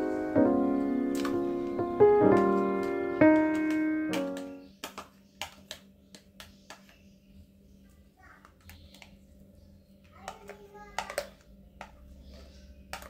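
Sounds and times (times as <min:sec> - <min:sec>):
piano music: 0:00.0 - 0:04.8.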